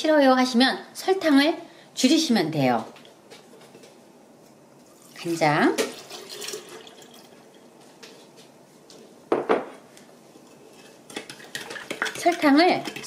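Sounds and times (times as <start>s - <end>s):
liquid pouring into glass pitcher: 5.0s - 7.5s.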